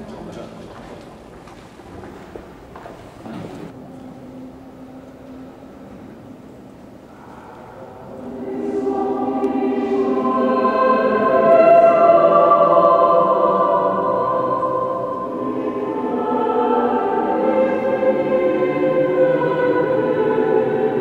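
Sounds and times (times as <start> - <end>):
choir singing held chords: 6.9 - 21.0.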